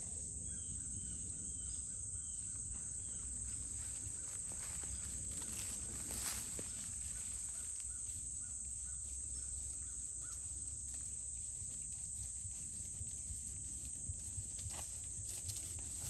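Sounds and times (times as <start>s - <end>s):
insects chorus: 0.0s - 16.0s
horse hoofbeats on grass: 9.7s - 16.0s.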